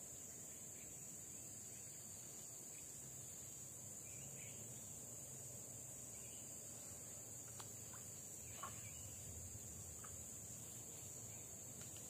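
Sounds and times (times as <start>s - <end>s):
insects droning: 0.0s - 12.0s
faint ticks: 7.4s - 8.9s, 9.9s - 10.6s, 11.7s - 12.0s.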